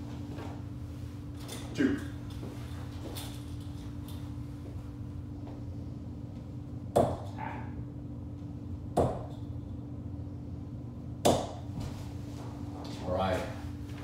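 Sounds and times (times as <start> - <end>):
low hum: 0.0 - 14.0
darts striking dartboard: 6.9 - 7.4, 9.0 - 9.4, 11.2 - 11.6.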